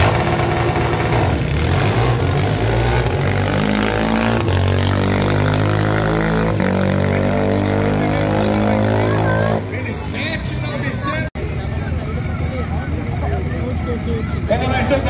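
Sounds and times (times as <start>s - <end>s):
racing car engine at full throttle: 0.0s - 15.0s.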